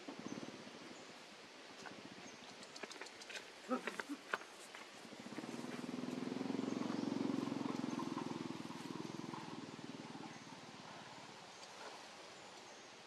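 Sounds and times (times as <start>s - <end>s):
small engine passing: 4.8s - 13.0s.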